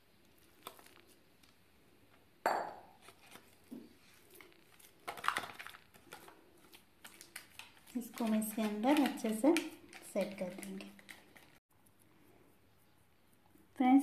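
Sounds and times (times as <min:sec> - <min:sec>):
knock against glass dish: 0:02.4 - 0:02.8.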